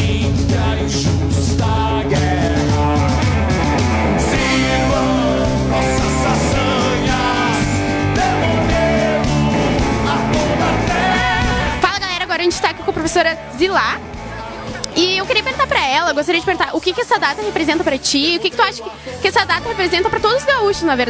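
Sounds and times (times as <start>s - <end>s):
guitar music: 2.3s - 21.0s
person singing: 4.3s - 11.9s.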